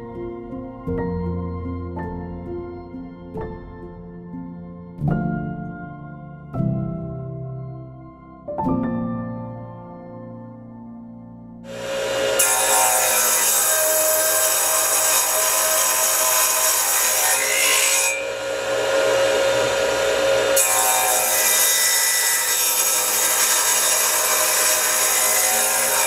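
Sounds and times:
saw motor whine: 11.7 - 26.0
table saw cutting wood: 11.7 - 26.0.

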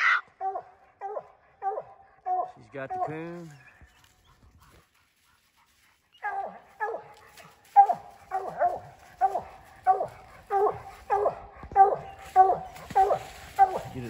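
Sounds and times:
dog barking: 0.4 - 3.2, 6.2 - 14.0.

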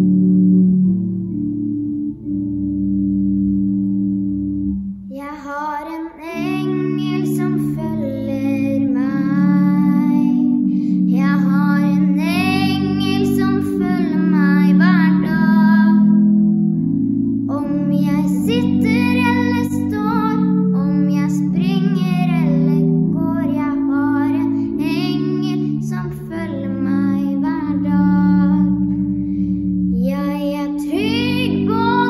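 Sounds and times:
held instrumental chords: 0.0 - 32.0
boy singing: 5.1 - 16.2, 17.5 - 28.9, 29.9 - 32.0.

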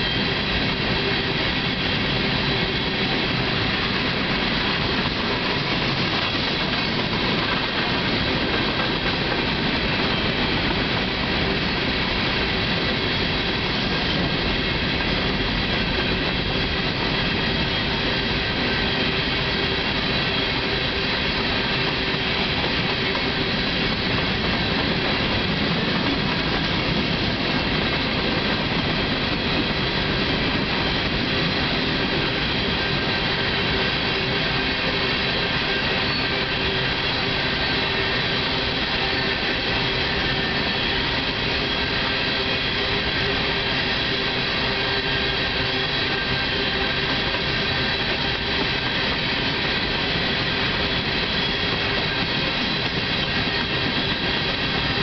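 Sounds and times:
freight train wheels rumbling: 0.0 - 55.0.

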